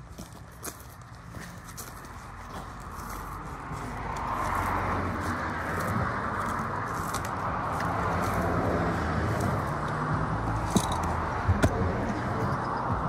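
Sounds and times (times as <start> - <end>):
low hum and rushing noise: 0.0 - 13.0
sharp knocks: 10.6 - 11.8.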